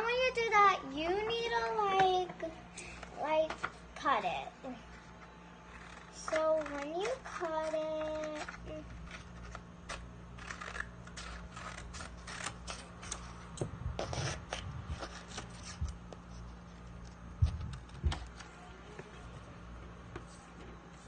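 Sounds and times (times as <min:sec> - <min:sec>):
paper rustling and crackling: 0:04.9 - 0:19.2.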